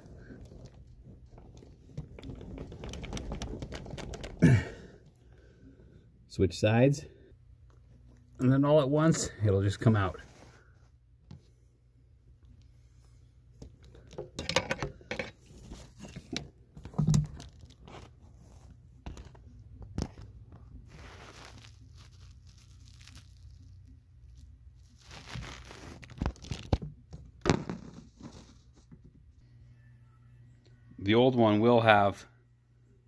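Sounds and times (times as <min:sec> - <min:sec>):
rustling: 0:00.0 - 0:05.8, 0:17.0 - 0:26.8
tools clicking and knocking: 0:14.0 - 0:15.4.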